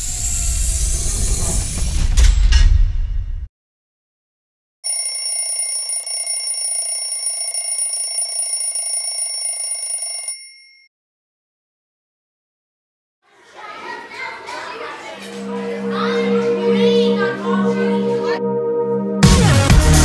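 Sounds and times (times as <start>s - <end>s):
alarm clock bell ringing: 4.8s - 10.9s.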